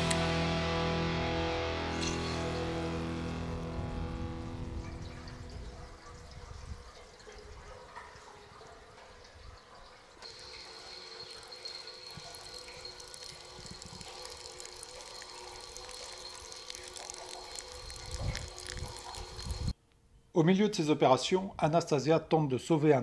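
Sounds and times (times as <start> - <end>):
water running and splashing: 2.2 - 19.7
water draining onto grass: 2.4 - 19.7
faint high whine: 10.2 - 19.7.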